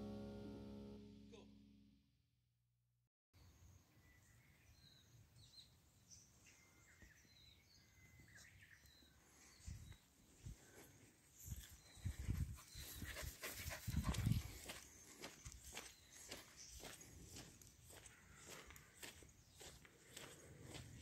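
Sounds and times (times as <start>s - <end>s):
guitar music: 0.0s - 2.0s
faint outdoor ambience: 3.4s - 21.0s.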